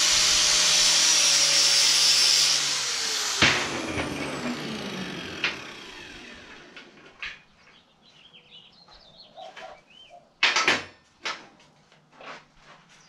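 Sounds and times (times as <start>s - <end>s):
power tool winding down: 0.0s - 7.3s
birds chirping: 7.3s - 10.4s.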